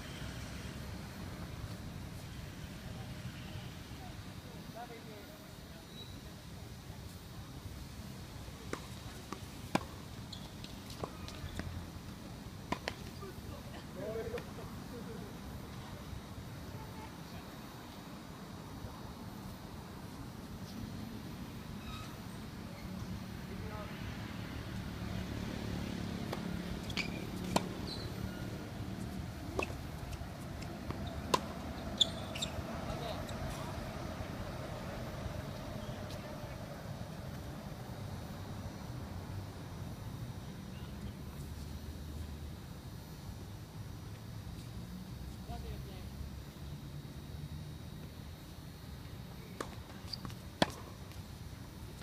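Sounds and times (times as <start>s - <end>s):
background traffic hum: 0.0s - 52.0s
tennis ball hits: 26.2s - 28.1s, 29.0s - 32.5s, 49.6s - 50.9s.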